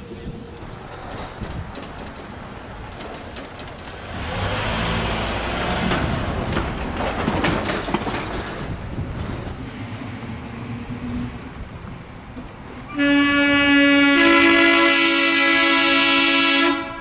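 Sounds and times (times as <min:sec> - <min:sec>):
wheels clicking: 0:00.0 - 0:12.9
trolley car rolling on track: 0:00.0 - 0:17.0.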